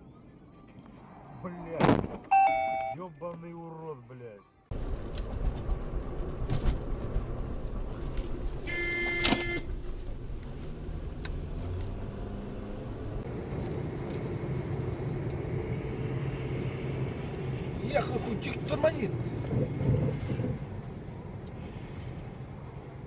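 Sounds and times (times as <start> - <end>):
car road and engine noise: 0.0 - 23.0
car horn blast: 8.7 - 9.7.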